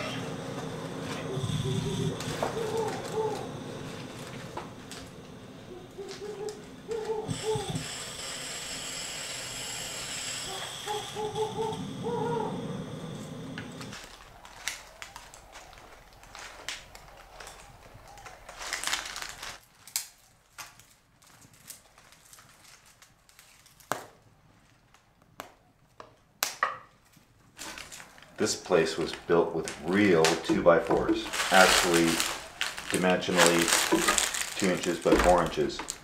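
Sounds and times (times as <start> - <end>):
steady hiss: 0.0 - 19.6, 28.4 - 36.0
fire popping: 0.0 - 24.2, 27.4 - 36.0
wood fire crackling: 0.0 - 26.0, 27.0 - 36.0.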